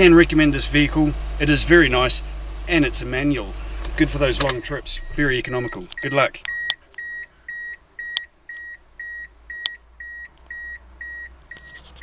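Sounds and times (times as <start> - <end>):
car warning chime beeping: 4.3 - 11.9.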